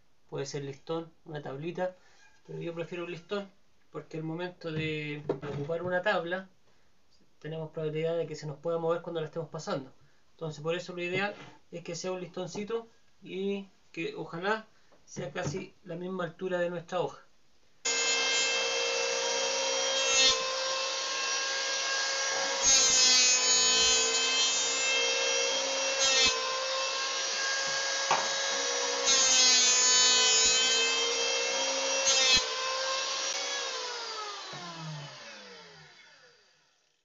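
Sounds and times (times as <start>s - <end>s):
electric planer whining: 17.9s - 37.0s.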